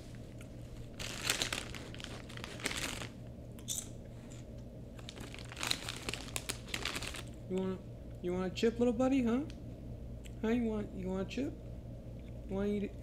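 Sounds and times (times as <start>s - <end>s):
plastic chip bag crinkling: 0.1s - 3.2s, 5.0s - 7.4s.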